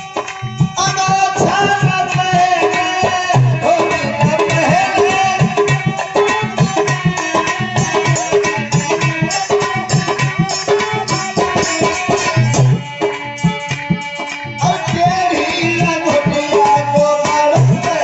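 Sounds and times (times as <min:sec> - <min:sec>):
harmonium melody: 0:00.0 - 0:18.0.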